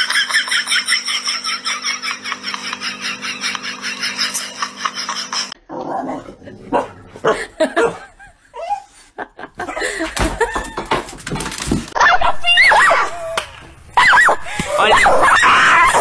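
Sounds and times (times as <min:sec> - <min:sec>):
dog barking and yipping: 0:06.7 - 0:08.1, 0:12.0 - 0:13.3, 0:14.0 - 0:14.4.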